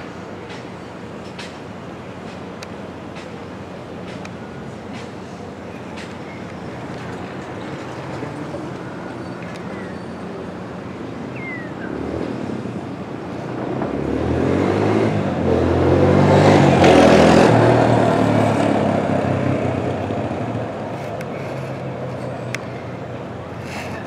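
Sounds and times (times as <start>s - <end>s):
vehicle engine passing by: 11.8s - 22.4s.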